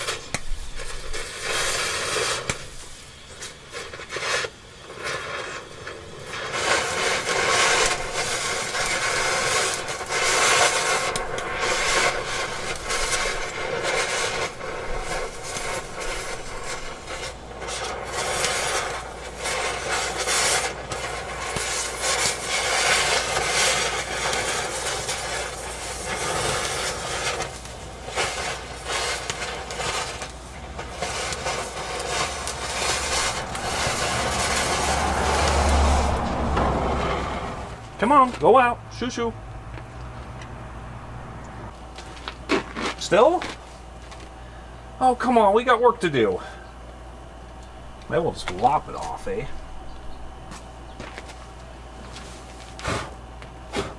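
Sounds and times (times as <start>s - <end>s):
cutting torch hissing: 0.0s - 53.9s.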